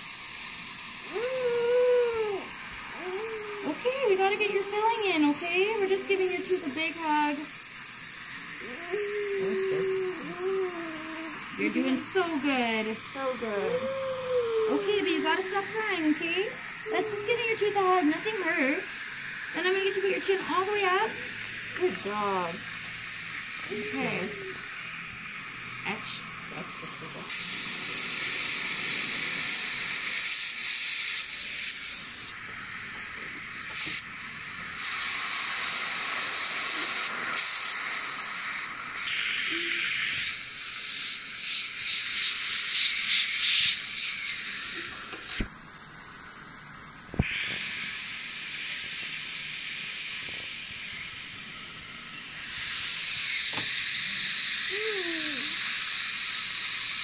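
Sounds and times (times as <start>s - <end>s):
dental suction hissing: 0.0s - 57.0s
loud hiss: 0.0s - 57.0s.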